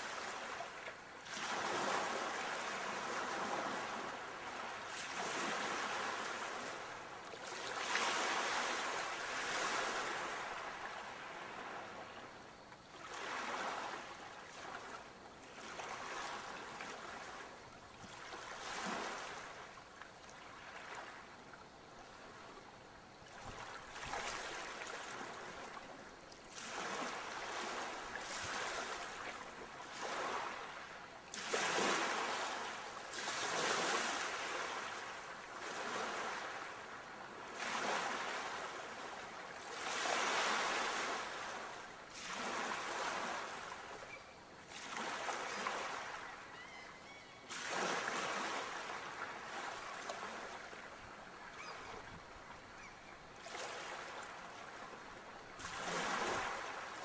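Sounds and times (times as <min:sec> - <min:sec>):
ocean waves washing onto shore: 0:00.0 - 0:19.8, 0:23.1 - 0:44.0, 0:53.4 - 0:57.0.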